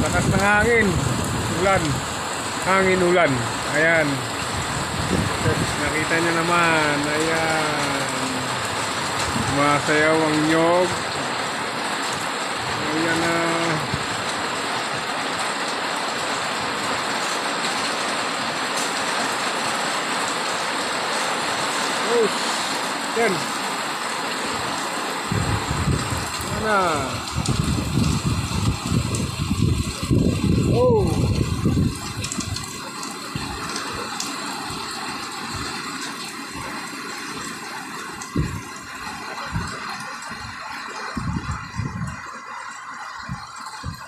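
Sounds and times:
strong squall wind: 0.0 - 10.2, 24.4 - 32.7, 38.2 - 42.4, 43.1 - 44.0
heavy rain: 0.0 - 44.0.

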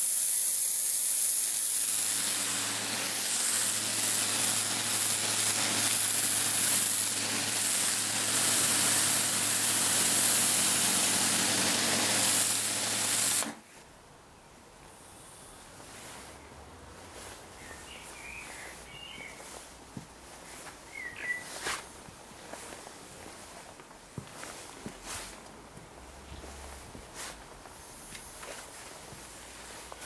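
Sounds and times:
pressure washer jet hissing: 0.0 - 13.6.

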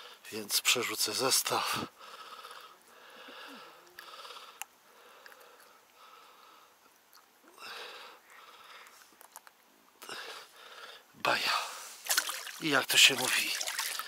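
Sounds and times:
man breathing through nose: 1.7 - 6.8, 7.6 - 9.1, 10.0 - 12.1.

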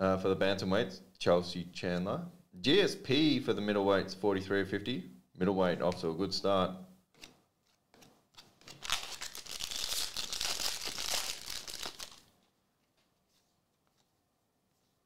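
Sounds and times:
trading cards flipped by hand: 7.1 - 12.2, 12.8 - 14.2.

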